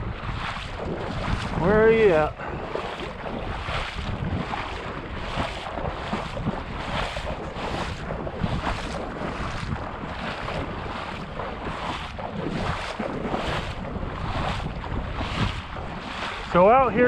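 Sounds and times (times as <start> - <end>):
sloshing of shallow water: 0.0 - 17.0
wind buffeting microphone: 0.0 - 17.0.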